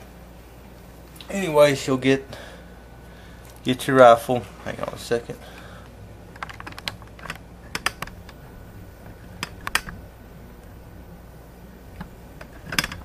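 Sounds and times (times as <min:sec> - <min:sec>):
low hum: 0:05.6 - 0:13.0.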